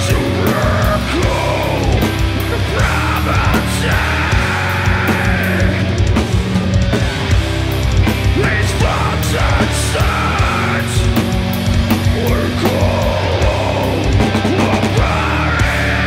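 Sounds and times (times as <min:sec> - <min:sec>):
person singing: 0:00.0 - 0:05.9, 0:08.3 - 0:11.2, 0:12.0 - 0:16.0
drums and crashing cymbals: 0:00.0 - 0:16.0
heavy guitars and bass: 0:00.0 - 0:16.0.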